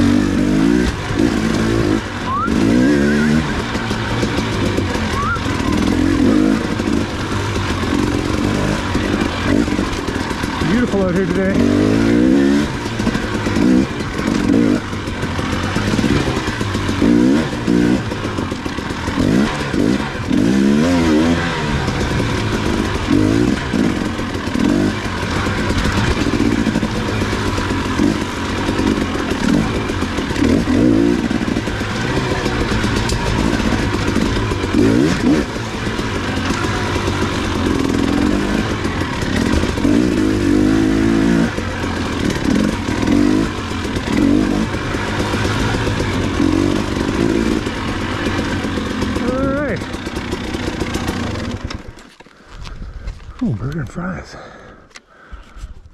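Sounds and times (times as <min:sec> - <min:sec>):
dirt bike engine revving: 0:00.0 - 0:52.2.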